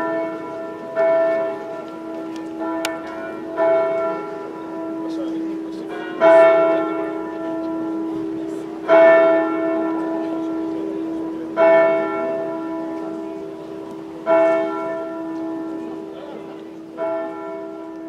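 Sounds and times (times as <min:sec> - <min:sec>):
church bell tolling: 0:00.0 - 0:18.0.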